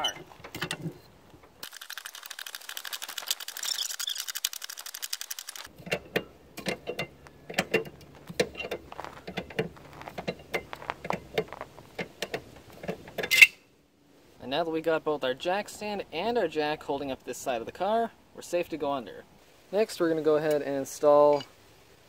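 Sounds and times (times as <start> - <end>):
jack creaking: 0.0 - 13.5.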